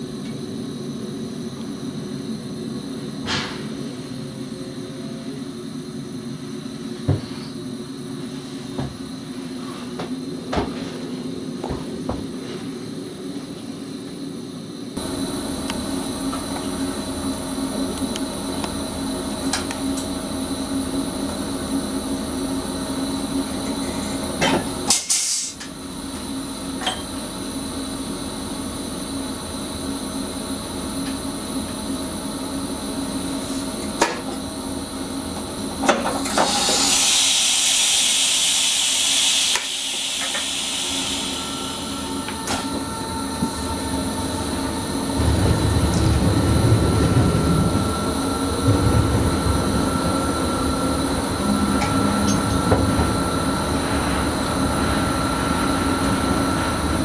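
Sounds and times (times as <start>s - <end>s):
train equipment hum: 0.0s - 57.0s
compressed air hissing: 36.4s - 42.8s.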